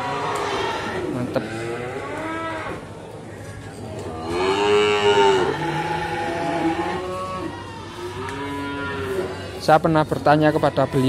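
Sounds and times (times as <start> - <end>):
calves mooing: 0.0 - 2.8, 4.2 - 9.6.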